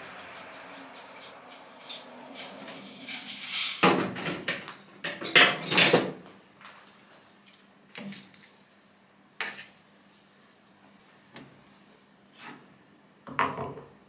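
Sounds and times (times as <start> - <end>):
metal lathe cutting: 0.0 - 3.6.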